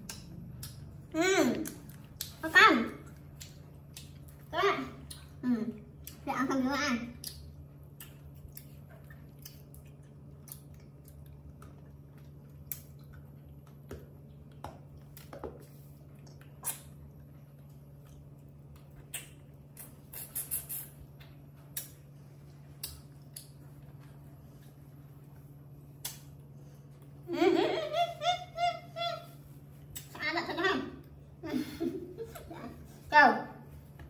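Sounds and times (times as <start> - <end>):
steady low hum: 0.0 - 34.0
monkey licking a lollipop: 19.1 - 21.2.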